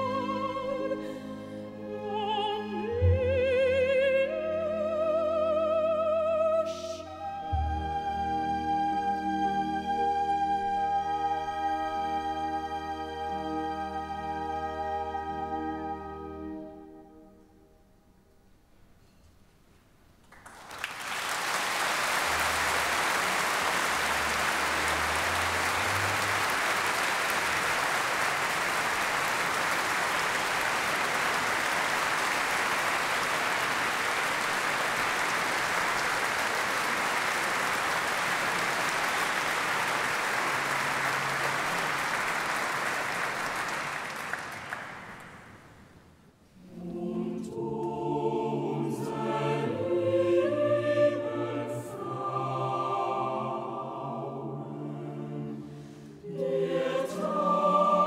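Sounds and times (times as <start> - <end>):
choir singing: 0.0 - 17.2, 46.6 - 58.0
audience applause: 20.3 - 45.8.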